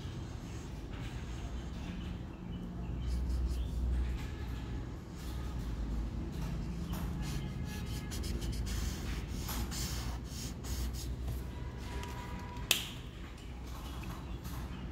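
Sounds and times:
marker rubbing on paper: 3.0 - 4.0, 7.0 - 11.5.

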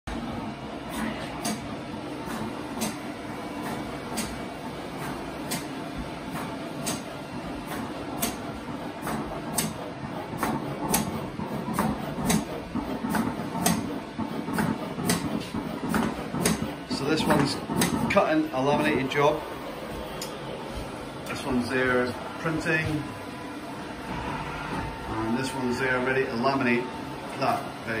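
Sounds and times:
printer mechanical hum: 0.1 - 28.0
sharp machine clicks: 7.7 - 18.2.

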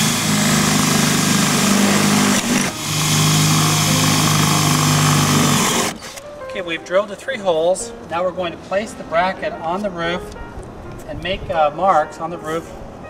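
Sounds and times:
cordless drill boring through metal: 0.0 - 6.2.

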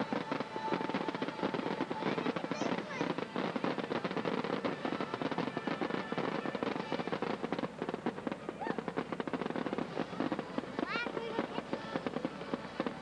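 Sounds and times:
fireworks crackling: 0.0 - 13.0.

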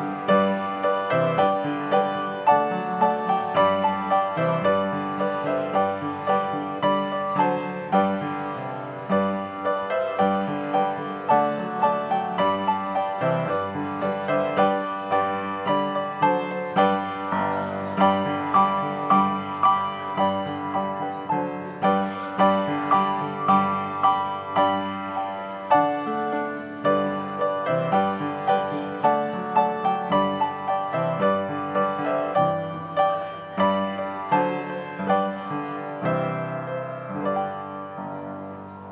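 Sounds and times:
piano music: 0.0 - 38.9.

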